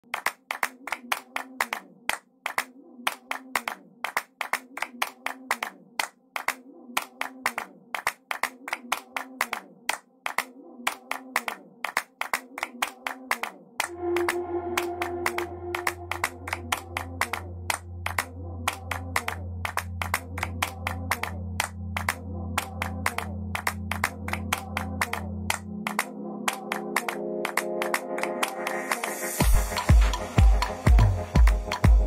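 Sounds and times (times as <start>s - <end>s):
handclaps in dance rhythm: 0.0s - 32.0s
held synth note: 13.9s - 18.7s
faint wavering low melody: 13.9s - 21.6s
bass note: 13.9s - 22.6s.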